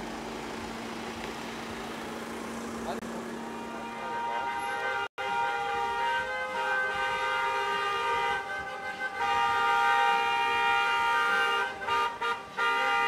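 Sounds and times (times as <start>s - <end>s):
car horns honking: 3.0s - 13.0s.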